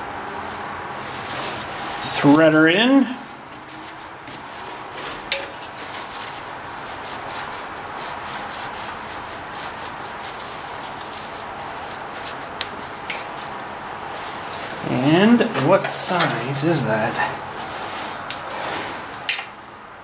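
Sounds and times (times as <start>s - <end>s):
threads rasping while screwing: 3.4s - 17.1s.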